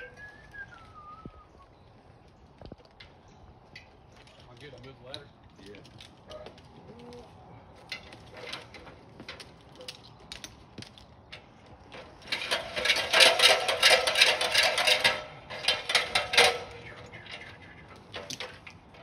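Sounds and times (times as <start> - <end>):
metal ladder rattling: 7.9 - 10.0, 11.3 - 19.0
ladder clicks and knocks: 12.0 - 17.5.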